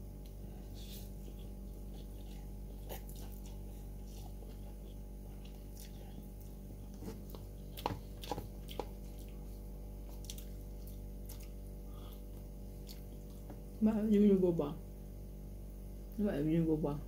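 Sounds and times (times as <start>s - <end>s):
slurping and chewing noodles: 0.3s - 13.5s.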